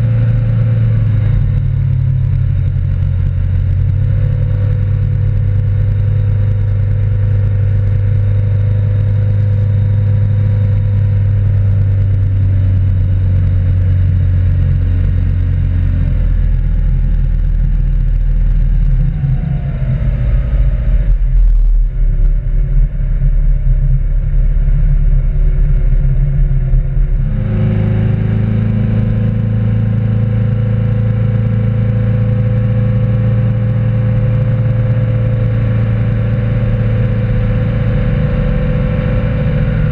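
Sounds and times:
boat engine running: 0.0 - 39.9.

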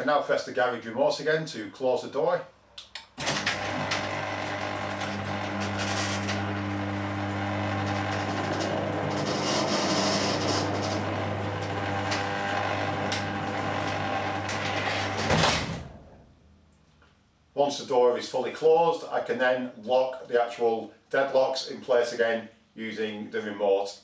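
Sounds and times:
garage door clunk: 3.2 - 6.6, 7.4 - 16.0
garage door opener running: 3.2 - 16.1.

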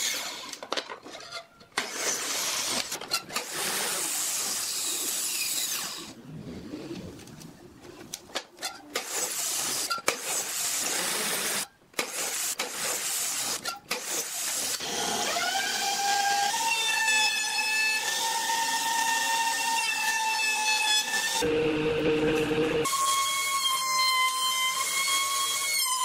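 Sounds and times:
miter saw cutting wood: 9.0 - 26.0
router high whine: 21.4 - 23.1.

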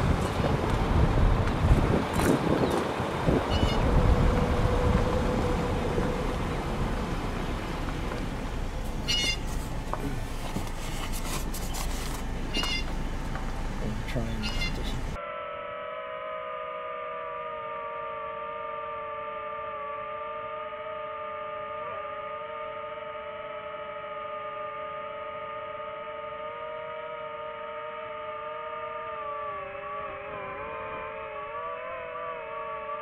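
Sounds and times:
drone propellers whining: 0.0 - 33.0.

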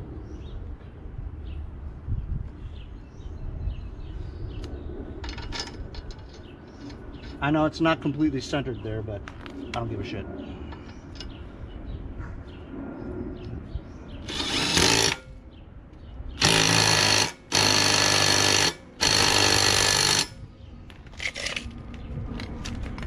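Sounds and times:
impact wrench hammering: 14.3 - 15.3, 16.4 - 20.4.

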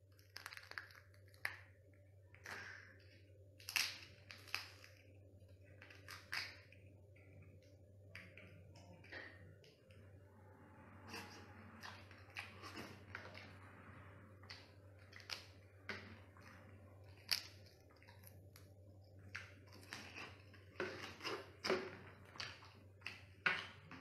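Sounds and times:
wet chewing and squishing: 0.0 - 10.1, 11.1 - 13.7, 14.4 - 24.0
crab shell cracking: 0.1 - 1.7, 3.6 - 5.0, 5.8 - 6.8, 17.1 - 21.8
low hum: 1.4 - 21.2.

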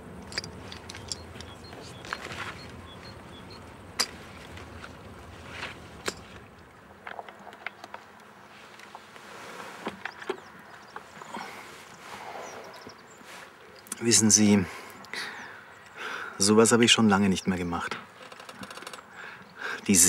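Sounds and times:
low background hum: 0.0 - 20.0
small sharp clicks and rustles: 17.9 - 19.1.

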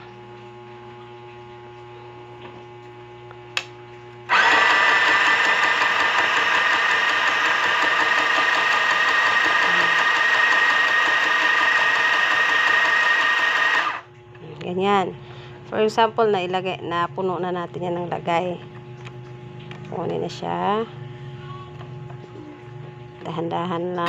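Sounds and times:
low mains hum: 0.0 - 7.1, 13.8 - 24.0
sewing machine motor whining: 4.3 - 14.0.

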